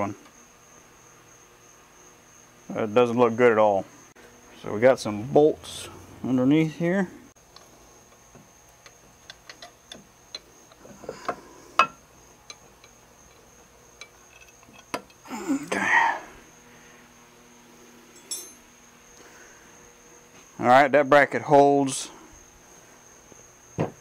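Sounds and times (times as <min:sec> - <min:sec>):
small metallic clicks and taps: 0:07.5 - 0:11.4.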